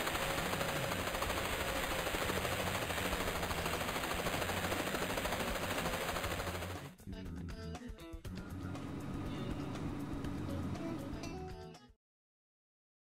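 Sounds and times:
cartoon helicopter rotor chopping: 0:00.0 - 0:07.0.

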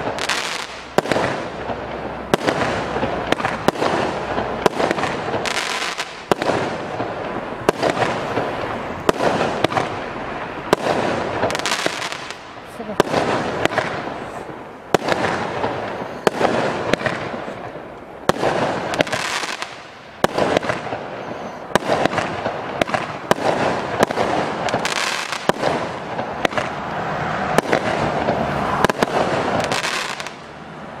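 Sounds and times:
firework cake bangs: 0:00.0 - 0:10.0, 0:18.3 - 0:21.1, 0:21.8 - 0:26.7
loud rushing noise: 0:25.5 - 0:31.0.

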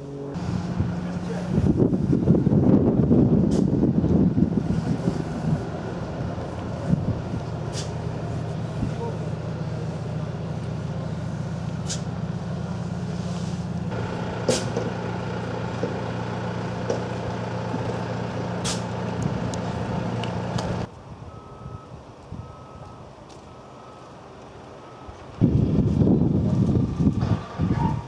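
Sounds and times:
heavy vehicle engine running: 0:00.0 - 0:28.0
short sharp hisses: 0:07.7 - 0:08.0, 0:11.8 - 0:12.1, 0:14.5 - 0:14.8, 0:18.6 - 0:18.9
reversing alarm beeping: 0:21.3 - 0:24.1.

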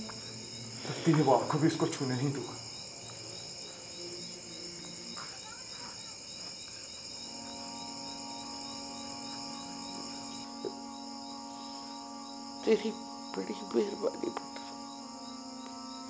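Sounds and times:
crickets chirping: 0:00.0 - 0:16.0
low musical drone: 0:07.2 - 0:16.0.

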